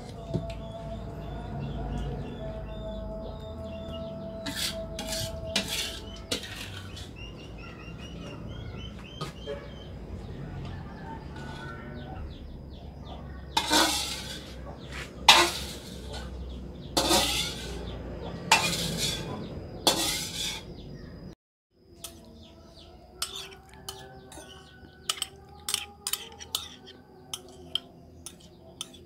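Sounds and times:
spatula scraping metal wok: 4.4s - 7.6s, 10.9s - 12.1s, 13.5s - 20.8s, 23.2s - 29.0s
spoon clinking ceramic bowl: 23.2s - 29.0s.

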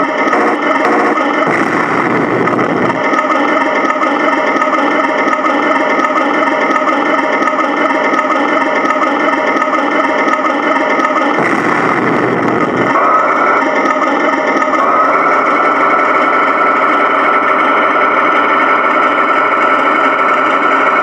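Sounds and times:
toy tank whirring with chug: 0.0s - 11.4s, 12.4s - 21.0s
deeper rumble: 0.4s - 5.4s, 11.4s - 21.0s.

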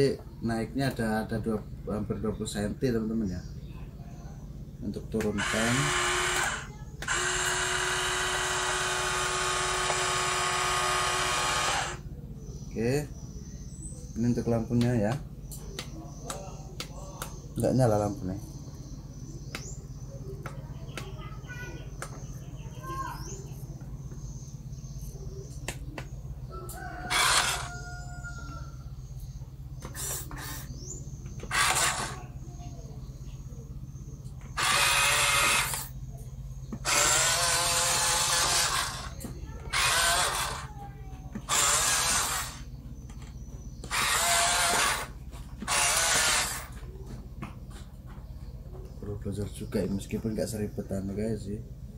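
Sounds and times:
steady low hum: 0.0s - 51.9s
toy truck electric motor whirring: 5.2s - 12.0s, 26.8s - 28.0s, 29.8s - 30.7s, 31.3s - 32.4s, 34.5s - 36.0s, 36.7s - 46.8s
rooster crowing: 26.5s - 29.0s.

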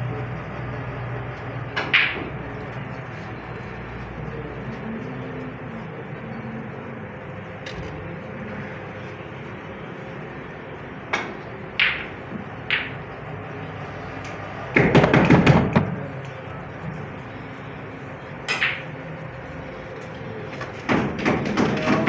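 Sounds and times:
steady room hum: 0.0s - 22.0s
cue striking ball click: 1.7s - 2.6s, 11.1s - 13.1s, 18.4s - 19.0s
snooker balls clacking: 1.7s - 2.7s, 11.0s - 13.1s, 14.3s - 16.2s, 18.4s - 19.1s, 20.6s - 22.0s.

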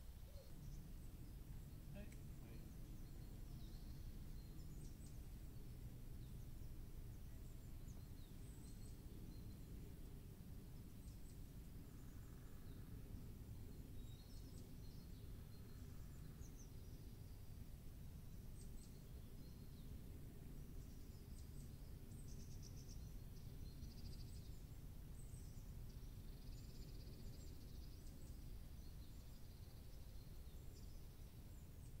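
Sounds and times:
songbirds chirping: 0.0s - 32.0s
steady low rumble: 0.6s - 21.3s.

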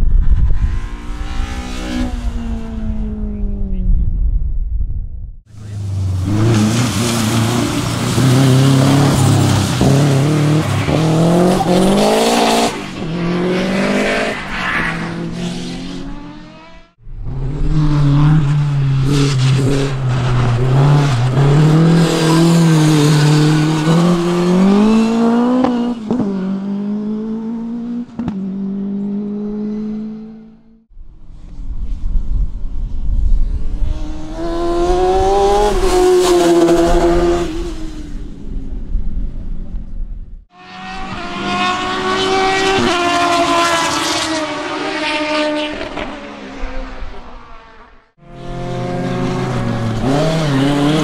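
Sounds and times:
racing car engine accelerating: 40.6s - 51.0s.

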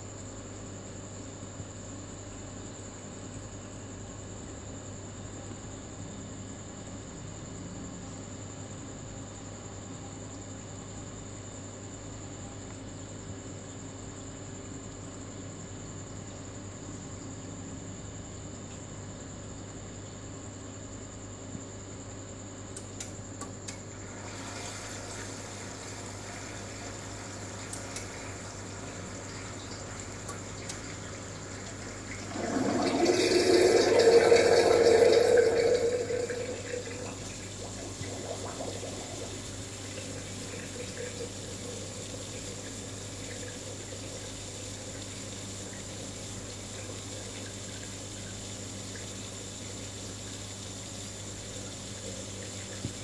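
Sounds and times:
electrical hum: 0.0s - 53.0s
faint high whine: 0.0s - 53.0s
water rushing: 31.4s - 42.7s.

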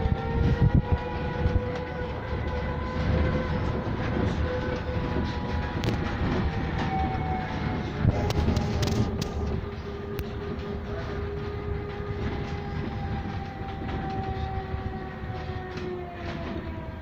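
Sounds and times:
electric bus drive whine: 0.0s - 17.0s
low road rumble: 0.0s - 17.0s.

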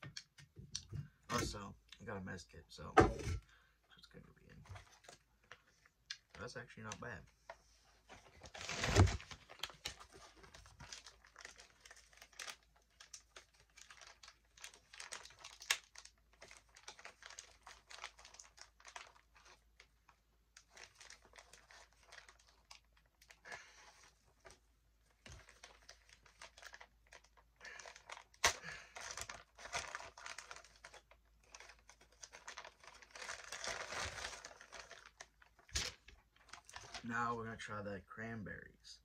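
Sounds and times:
plastic packets crinkling: 8.1s - 37.1s.

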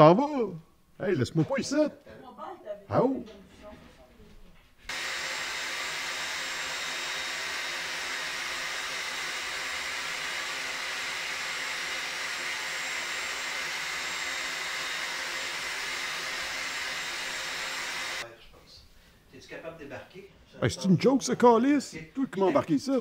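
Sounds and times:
electric blower motor whirring: 4.9s - 18.2s.

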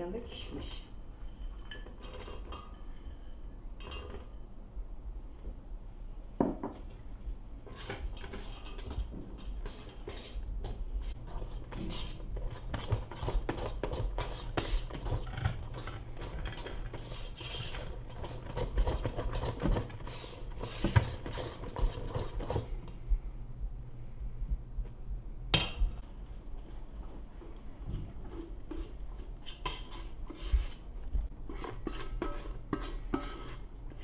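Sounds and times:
whisk scraping metal bowl: 7.7s - 10.4s, 11.2s - 22.7s, 28.3s - 30.9s, 31.5s - 34.0s.

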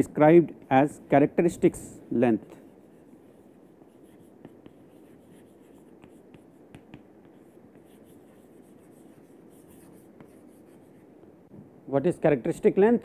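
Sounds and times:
chalk scratching on chalkboard: 2.4s - 11.1s
chalk tapping on board: 2.5s - 11.0s.

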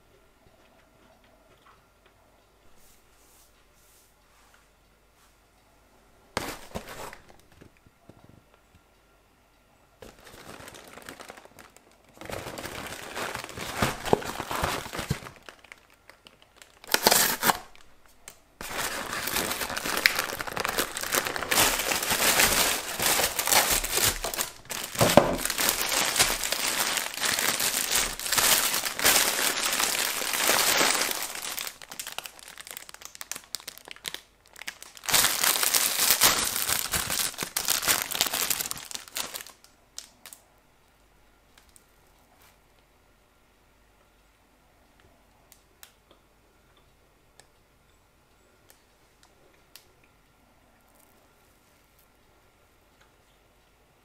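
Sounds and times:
plastic wrappers crinkling: 6.4s - 7.8s, 10.0s - 40.4s
cardboard box tearing: 16.9s - 17.7s.

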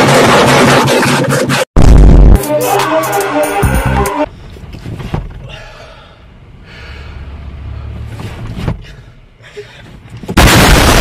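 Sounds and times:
man gasping heavily: 5.4s - 7.2s.

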